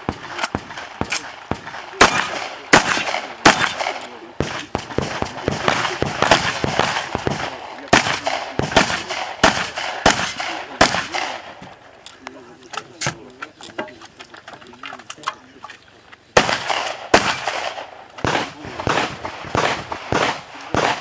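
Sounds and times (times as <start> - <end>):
rifle gunshots with echo: 0.0 - 11.9, 16.4 - 21.0.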